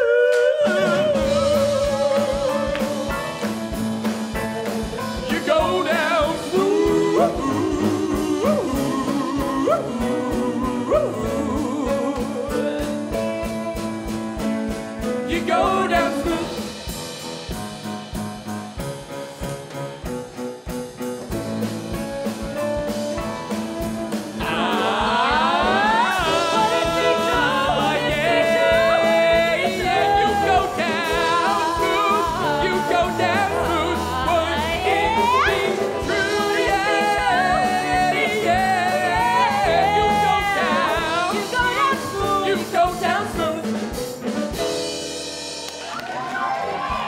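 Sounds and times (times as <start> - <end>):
man and woman singing: 0.0 - 16.8, 23.5 - 44.3
drums: 0.0 - 47.0
piano: 0.0 - 47.0.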